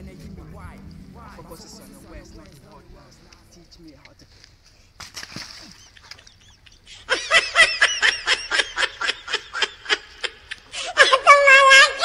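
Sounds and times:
person laughing hard: 5.6 - 11.7.

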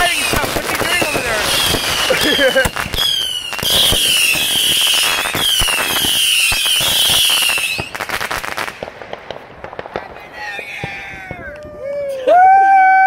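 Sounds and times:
firework pops and crackles: 0.0 - 12.2
firework whistles falling in pitch: 1.2 - 8.0.

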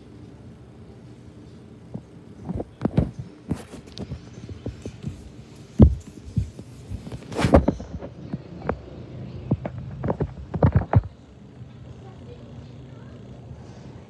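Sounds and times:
brief rustling: 2.4 - 8.8
dull thumps and knocks: 5.8 - 8.8.

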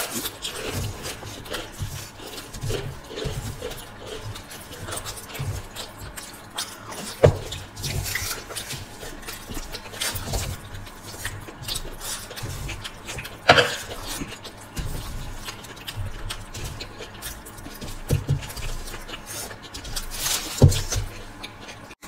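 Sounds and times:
people chewing food: 0.0 - 22.0
wet mouth sounds: 0.0 - 22.0.

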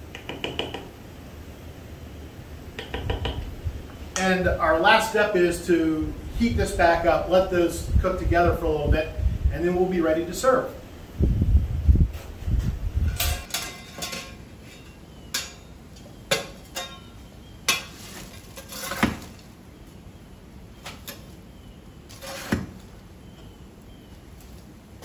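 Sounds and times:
iron fire tool scraping hearth: 17.7 - 19.5, 22.1 - 23.0.

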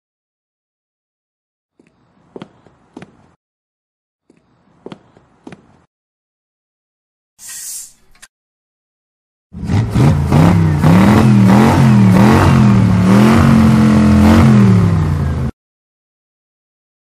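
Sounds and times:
cartoon truck engine revving: 9.6 - 15.5.

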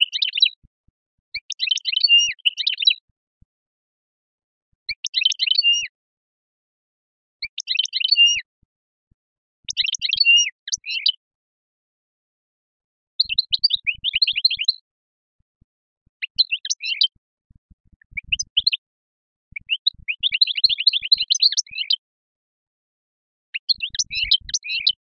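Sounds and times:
songbird twittering: 0.0 - 0.5, 1.4 - 3.0, 4.9 - 5.9, 7.4 - 8.5, 9.7 - 11.2, 13.2 - 14.9, 16.2 - 17.2, 18.0 - 18.8, 19.5 - 22.0, 23.5 - 25.0.

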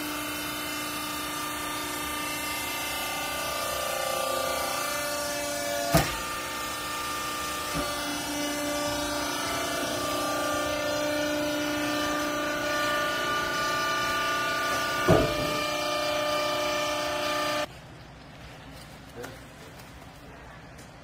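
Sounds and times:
hydraulic power unit humming: 0.0 - 17.7.

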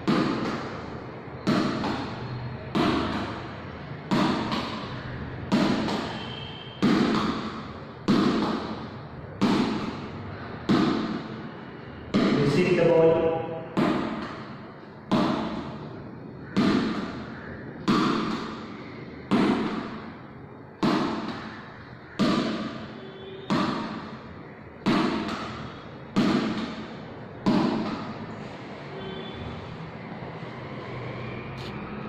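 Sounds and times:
rubber ball thudding against wall: 6.8 - 11.4, 13.7 - 15.8, 16.5 - 18.7, 19.3 - 20.1, 20.8 - 24.2, 24.8 - 28.2.

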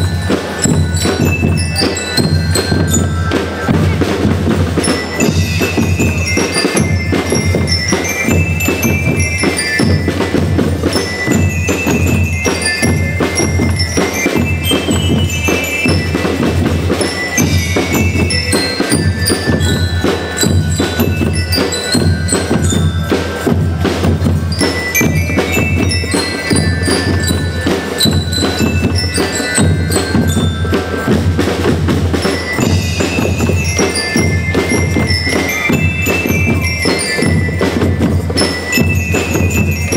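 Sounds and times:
bell lyres playing melody: 0.0 - 39.9.

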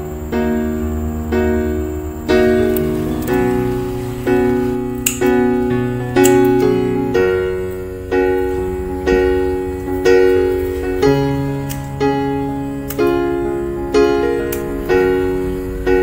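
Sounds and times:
slow chords: 0.0 - 16.0.

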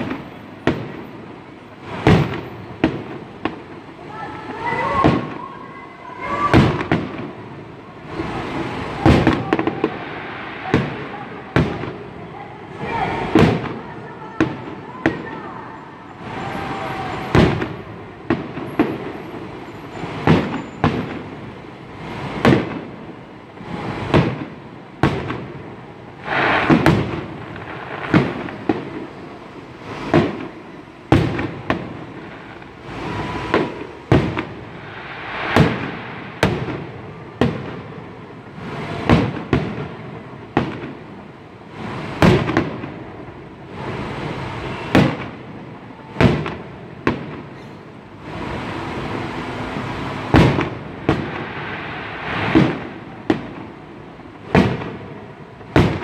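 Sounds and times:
firework shells bursting: 26.2 - 29.2, 29.8 - 37.8.

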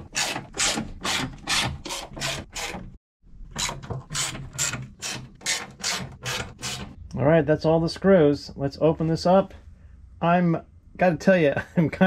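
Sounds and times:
hand ratchet driver rasping: 3.6 - 7.0.

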